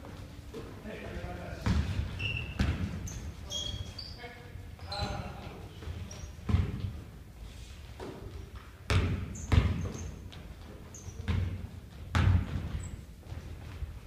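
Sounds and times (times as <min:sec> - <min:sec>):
basketball bouncing on wooden floor: 0:01.6 - 0:03.2, 0:05.9 - 0:07.0, 0:08.0 - 0:13.9
sneakers squeaking on court: 0:01.6 - 0:07.0, 0:08.0 - 0:13.9.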